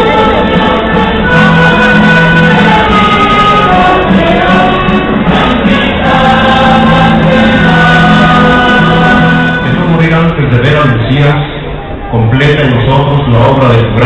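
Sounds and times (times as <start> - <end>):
choir singing a hymn: 0.0 - 10.2.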